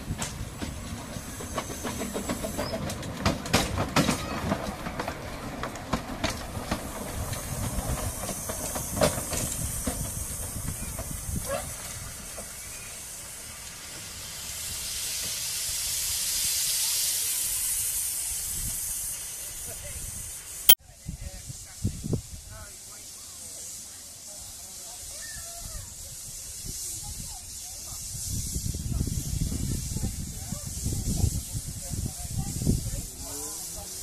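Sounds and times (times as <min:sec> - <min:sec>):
loud hiss of escaping steam: 0:00.0 - 0:03.1, 0:06.4 - 0:20.7, 0:21.4 - 0:34.0
wheels clicking over rails: 0:00.0 - 0:12.6
steam locomotive moving slowly: 0:00.0 - 0:20.7, 0:21.4 - 0:34.0.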